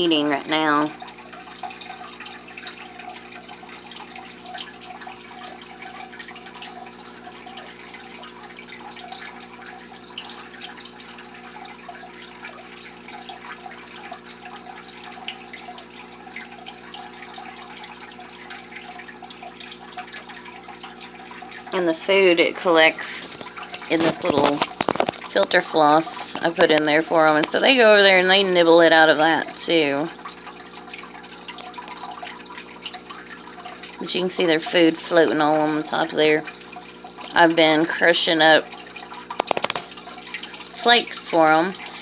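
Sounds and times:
aquarium filter trickling water: 0.0s - 42.0s
dripping ticks: 0.0s - 42.0s
fine bubbling: 0.0s - 42.0s.

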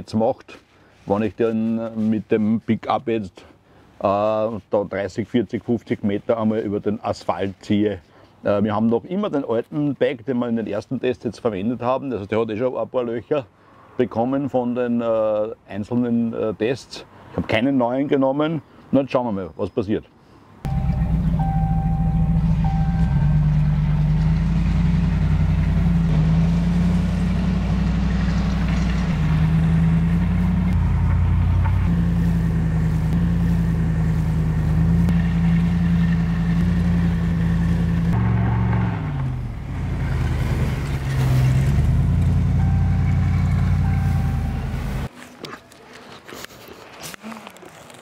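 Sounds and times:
pickup truck engine under load: 20.7s - 45.1s
rushing road noise: 20.7s - 45.1s.

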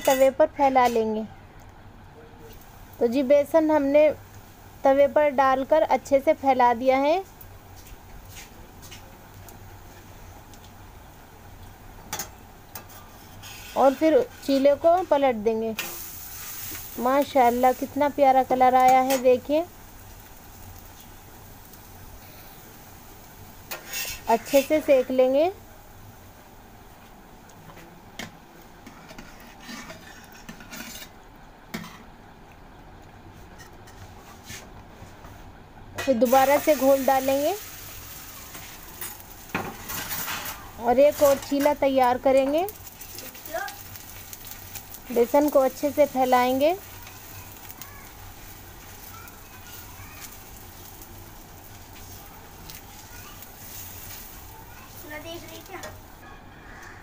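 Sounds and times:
batter sizzling on hot griddle: 2.4s - 32.1s, 36.0s - 56.2s
metal spatula scraping griddle: 12.7s - 16.9s, 23.7s - 25.3s, 28.8s - 31.2s, 38.5s - 41.8s.

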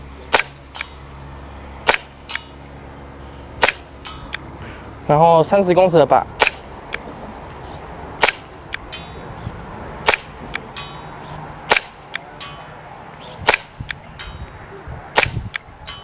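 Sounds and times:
airsoft pistol shots: 0.3s - 1.0s, 1.8s - 2.6s, 3.6s - 4.4s, 6.4s - 6.9s, 8.2s - 9.2s, 10.0s - 11.0s, 11.7s - 12.6s, 13.4s - 14.4s, 15.2s - 16.0s.

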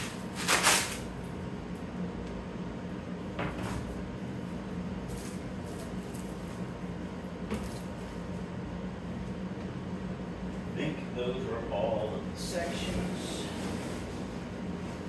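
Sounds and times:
plastic rustling: 0.0s - 1.1s
steady low hum: 0.0s - 15.0s.

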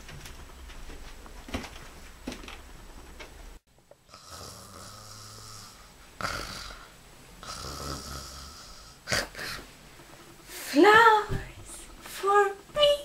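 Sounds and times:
girl snoring: 4.1s - 9.7s.

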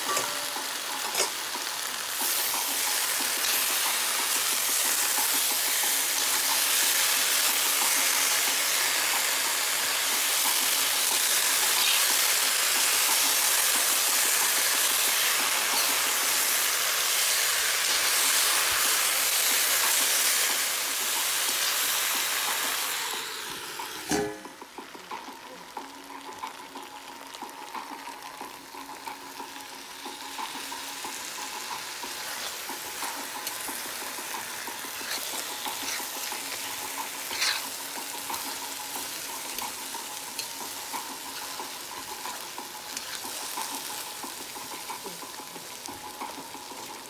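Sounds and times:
potatoes sizzling in a pan: 0.0s - 47.0s
water steaming in a hot pan: 0.0s - 47.0s
spoon stirring: 34.9s - 37.9s.

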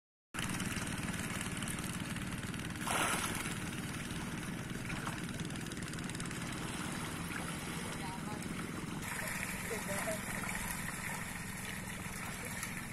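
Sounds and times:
small engine running: 0.4s - 12.9s
water splash: 2.8s - 12.9s.

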